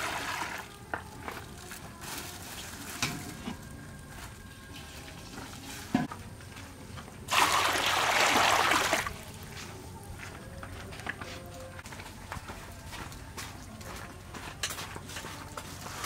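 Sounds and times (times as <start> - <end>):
water splashing into a wok: 7.3 - 9.2.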